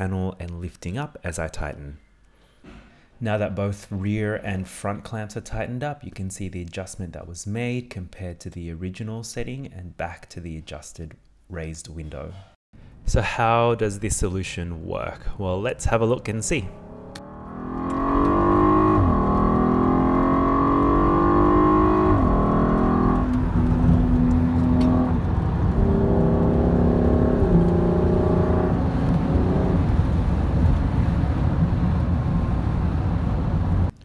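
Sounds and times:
car engine accelerating: 16.6 - 33.9
tyre and road noise: 16.6 - 33.9.

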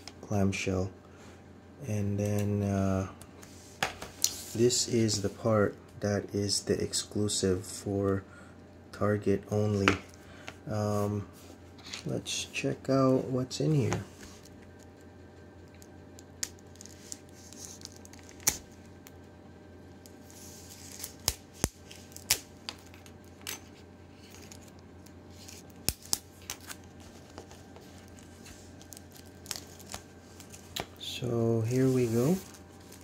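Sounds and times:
plastic wrap crinkling: 15.8 - 19.1, 20.1 - 31.0
plastic wrap snapping: 15.8 - 19.2
plastic rustling: 20.1 - 33.0.

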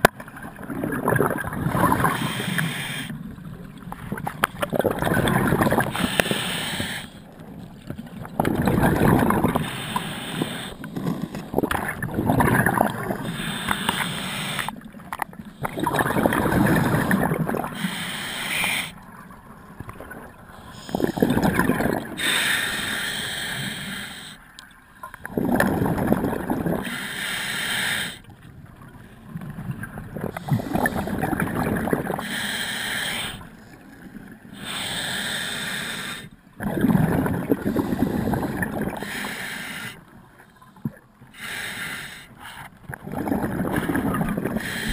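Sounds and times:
exhaled bubbles rushing underwater: 0.0 - 17.9, 18.6 - 22.3, 25.0 - 26.9, 28.2 - 32.3, 36.6 - 39.1, 42.8 - 44.9
diver inhaling through regulator: 1.8 - 3.2, 5.8 - 7.3, 9.3 - 11.4, 13.1 - 14.8, 15.6 - 19.0, 20.6 - 21.6, 22.2 - 24.4, 26.8 - 28.3, 30.3 - 31.3, 32.0 - 33.6, 34.5 - 36.4, 37.5 - 40.1, 41.3 - 42.7, 43.8 - 44.9.

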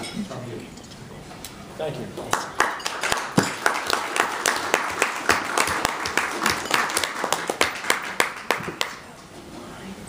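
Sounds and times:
audience applauding: 2.3 - 9.1.

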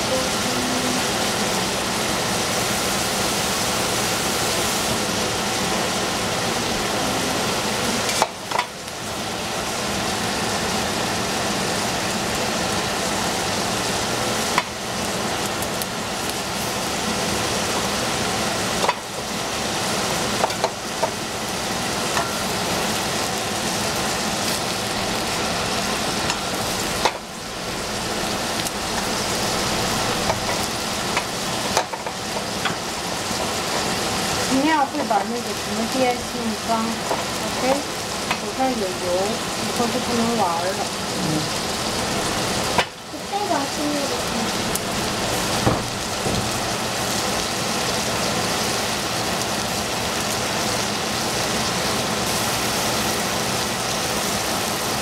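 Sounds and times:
food sizzling in hot oil: 0.0 - 55.0.

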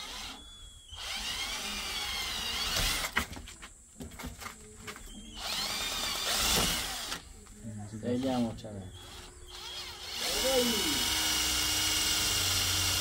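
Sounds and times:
power drill running: 0.0 - 3.2, 5.4 - 7.2, 8.0 - 13.0.

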